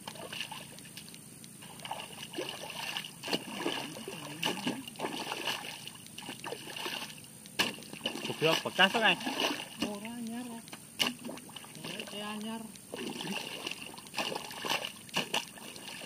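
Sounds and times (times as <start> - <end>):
mud and water splashing: 0.0 - 16.0
hoe chopping wet mud: 1.8 - 10.1, 11.0 - 12.2, 12.9 - 16.0.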